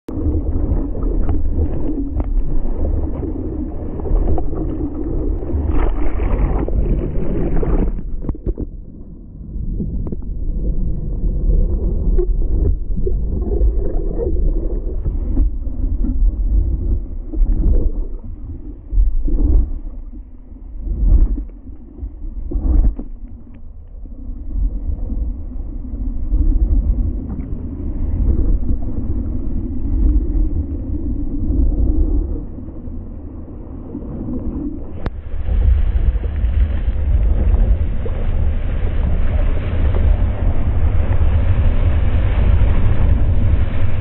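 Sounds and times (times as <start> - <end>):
water rushing and splashing: 0.1 - 9.1, 9.9 - 23.7, 25.9 - 44.0
wind buffeting microphone: 24.2 - 44.0.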